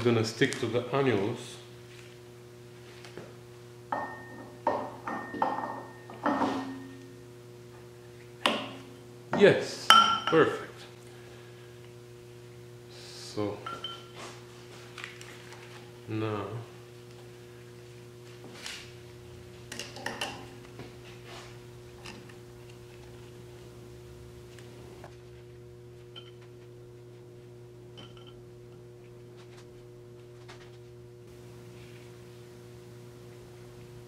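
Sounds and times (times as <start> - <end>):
steady electrical hum: 0.0 - 34.0.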